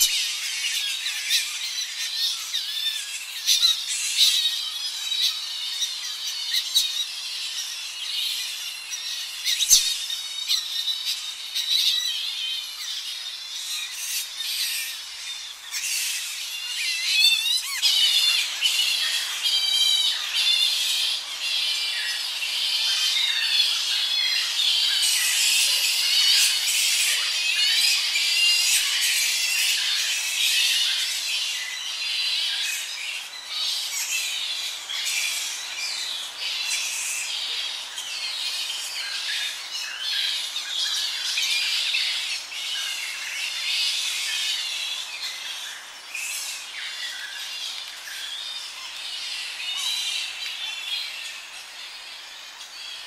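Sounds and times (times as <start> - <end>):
bats squealing and squawking: 0.0 - 31.6
birds singing: 0.0 - 53.0
flying fox colony chattering: 0.0 - 53.0.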